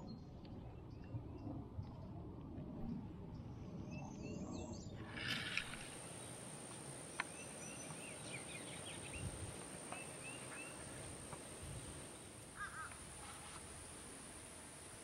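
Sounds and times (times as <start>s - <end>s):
faint bird calls: 7.1s - 11.6s, 12.5s - 13.6s.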